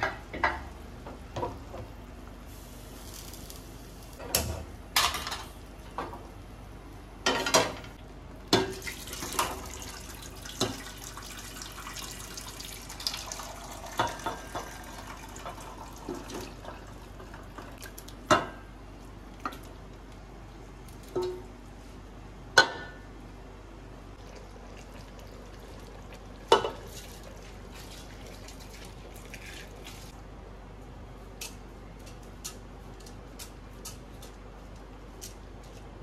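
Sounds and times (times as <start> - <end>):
pots and utensils clinking: 26.4 - 29.8.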